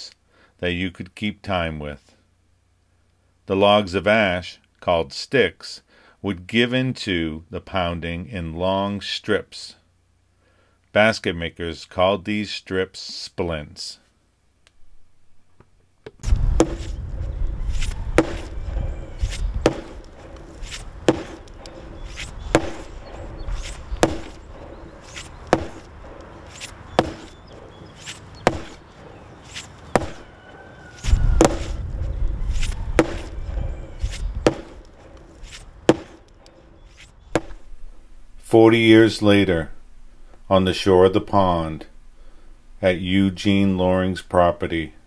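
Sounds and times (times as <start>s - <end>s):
low rumble: 16.2s - 27.8s, 31.0s - 38.4s
log being pounded: 16.2s - 36.5s, 37.3s - 37.7s.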